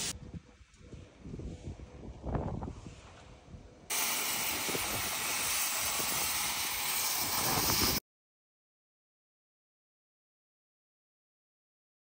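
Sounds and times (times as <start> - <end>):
cutting torch hissing: 3.9 - 8.0.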